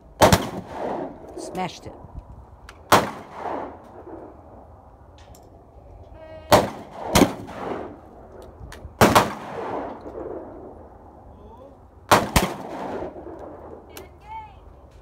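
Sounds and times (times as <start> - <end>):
shotgun shots with echo: 0.2 - 1.1, 2.9 - 4.2, 6.5 - 8.0, 9.0 - 10.0, 12.1 - 13.3.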